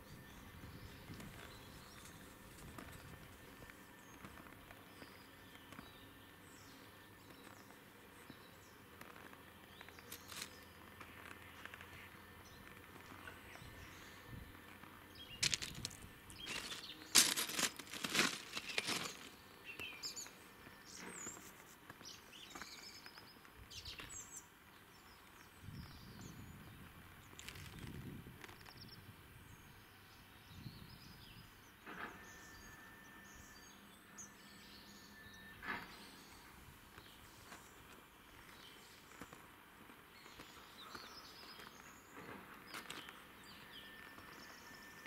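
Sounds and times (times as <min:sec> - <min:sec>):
small birds chirping: 0:00.0 - 0:31.7, 0:32.4 - 0:44.8
loud crackling and crunching: 0:15.4 - 0:19.4.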